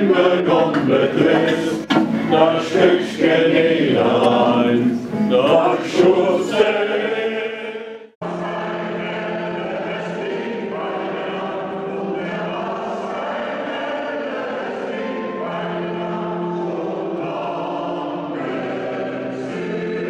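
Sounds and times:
choir singing held notes: 0.0 - 20.0
group of voices singing: 0.0 - 20.0.

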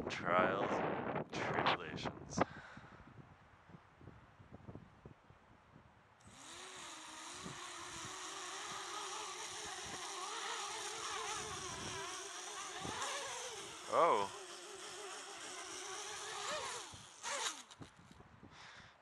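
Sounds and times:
quadcopter motors buzzing: 6.2 - 18.2.

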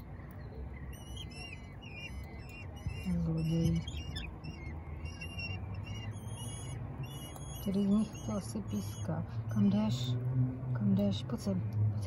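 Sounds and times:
chicks whistling begging calls: 0.0 - 9.2.

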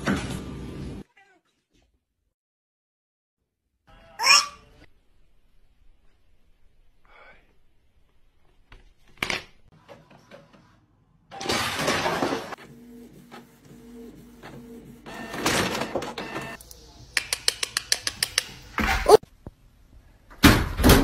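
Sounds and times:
printer rushing noise: 11.4 - 16.6
printer motors whirring: 12.6 - 16.6.

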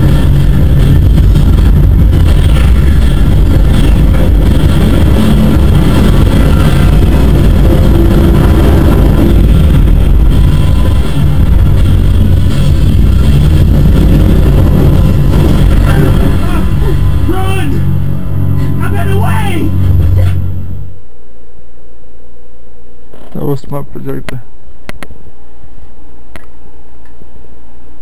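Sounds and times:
film music: 0.0 - 21.3
low rumble of film effects: 0.0 - 28.0.

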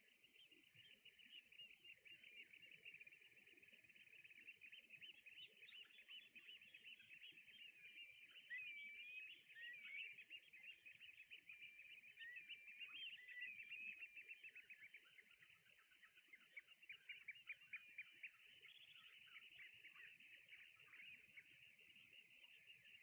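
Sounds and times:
flock of birds chirping: 0.0 - 23.0.

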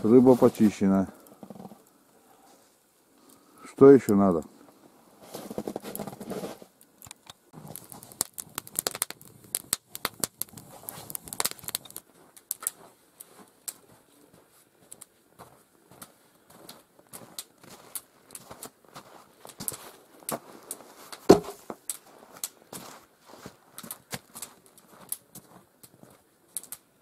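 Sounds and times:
campfire crackling and popping: 0.0 - 27.0.

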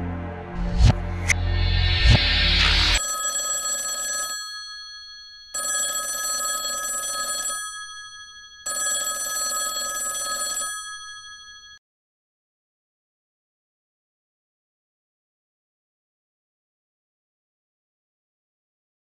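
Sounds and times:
mobile phone ringing: 3.0 - 11.8.

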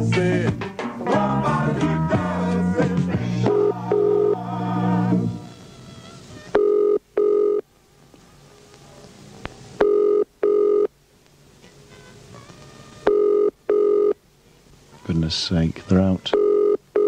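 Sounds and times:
telephone ringing tone: 3.5 - 4.5, 6.5 - 7.6, 9.8 - 10.9, 13.0 - 14.2, 16.3 - 17.0.

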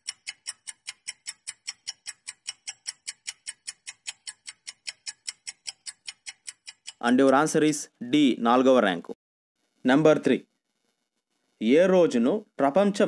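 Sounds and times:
fast countdown timer ticking: 0.0 - 7.4.

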